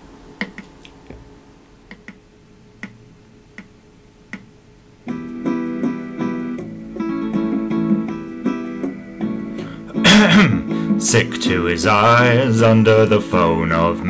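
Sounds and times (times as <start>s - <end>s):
count-in clicks: 0.4s - 1.0s, 1.9s - 2.2s, 2.8s - 3.0s.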